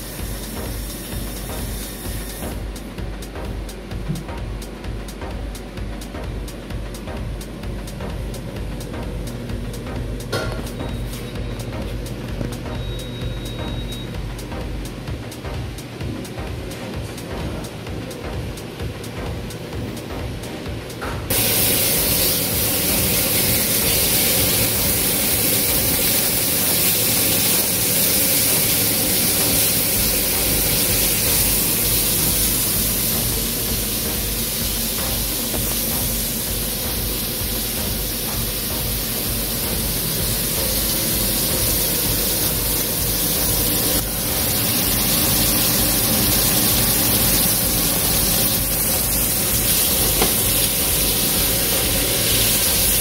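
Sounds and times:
burger patties sizzling in a pan: 21.3 - 53.0.

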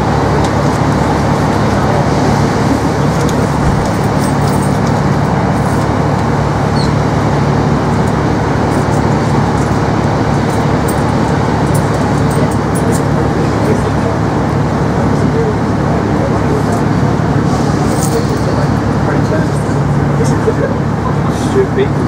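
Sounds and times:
train carriage rumble: 0.0 - 22.0.

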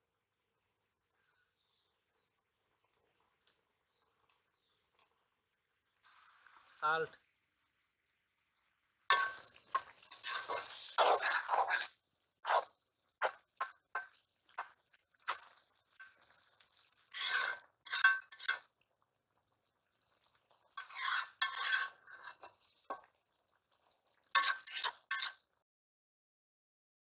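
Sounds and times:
metal spatula scraping pan: 9.1 - 16.4, 17.0 - 18.7, 20.7 - 23.0, 24.3 - 25.5.

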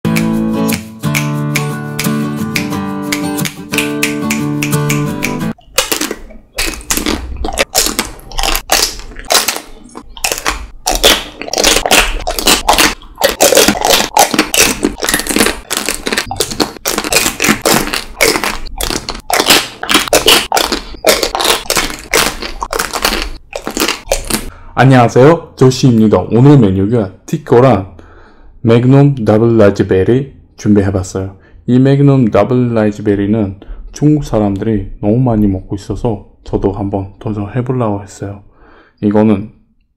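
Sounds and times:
biting hard chocolate shells: 5.6 - 24.5
chewing: 5.6 - 24.5.

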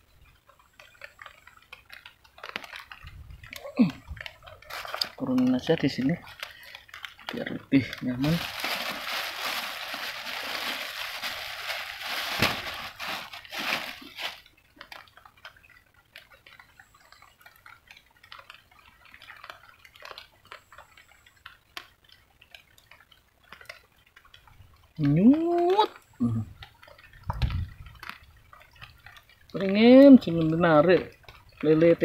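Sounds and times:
faint drips: 0.0 - 32.0
plastic bag crinkling: 1.8 - 15.3.

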